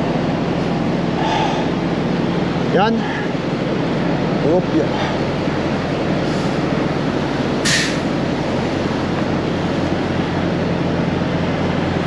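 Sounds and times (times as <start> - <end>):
truck engine idling: 0.0 - 12.0
short air hiss: 7.6 - 8.1.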